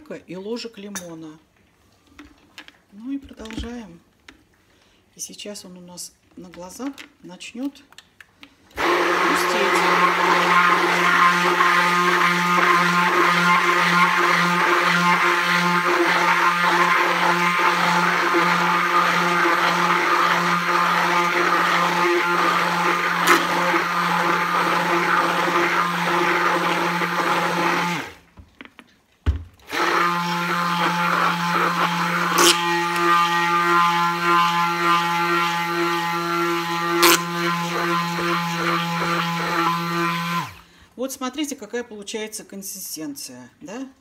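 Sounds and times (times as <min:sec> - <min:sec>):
immersion blender running: 0:08.8 - 0:28.2, 0:29.6 - 0:40.6.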